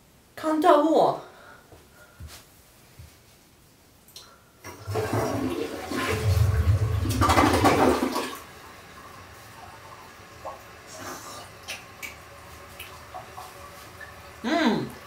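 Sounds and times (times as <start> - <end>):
toilet flushing: 4.6 - 15.0
toilet refilling hiss: 4.6 - 15.0.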